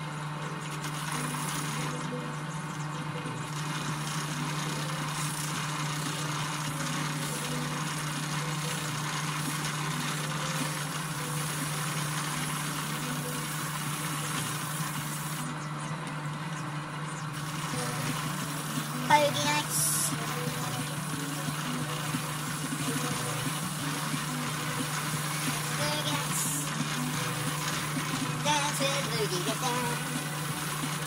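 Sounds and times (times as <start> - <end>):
grinder motor hum: 0.0 - 31.0
abrasive disc rasping: 17.1 - 31.0.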